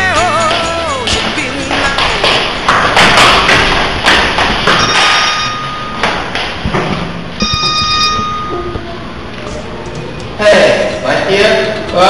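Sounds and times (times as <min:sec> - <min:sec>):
steady high tone: 0:04.6 - 0:06.4, 0:07.4 - 0:11.1.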